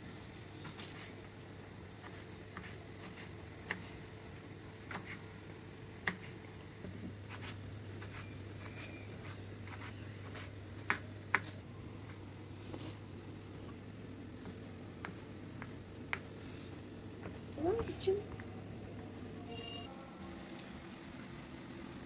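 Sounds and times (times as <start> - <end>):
knife tapping on wooden board: 14.4 - 16.3.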